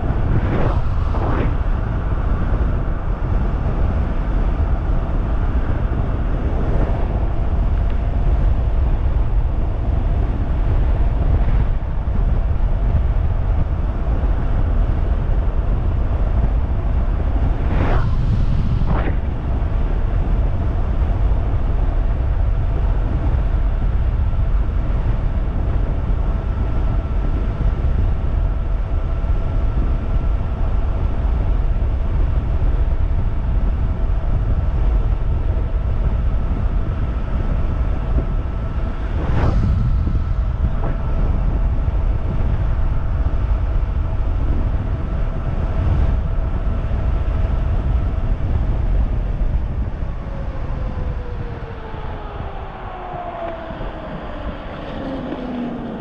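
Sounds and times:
passing whoosh: 0.0s - 3.2s, 17.5s - 19.9s, 38.7s - 41.2s
thin electric drive whine: 0.0s - 56.0s
wind on microphone: 0.0s - 56.0s.

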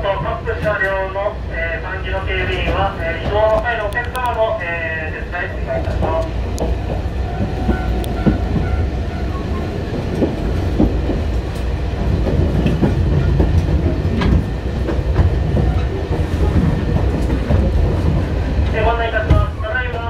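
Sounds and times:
train low rumble: 0.0s - 20.0s
wheels clacking over rail joints: 5.8s - 20.0s.

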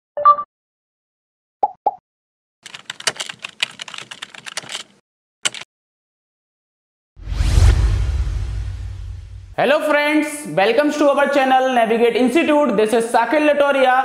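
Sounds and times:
keyboard key clicks: 2.7s - 5.7s.

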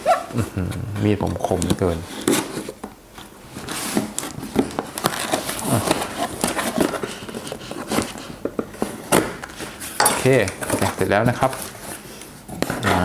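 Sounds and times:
cardboard flaps scraping and crackling: 1.0s - 10.0s.

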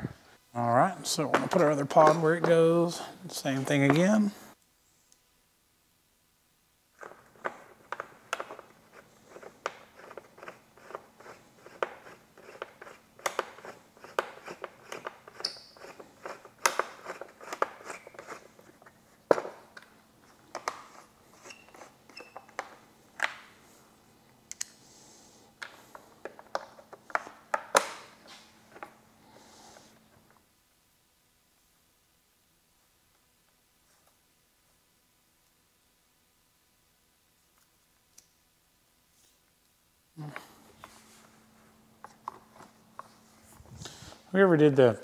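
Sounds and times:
plastic parts clicking and scraping: 7.0s - 23.4s.

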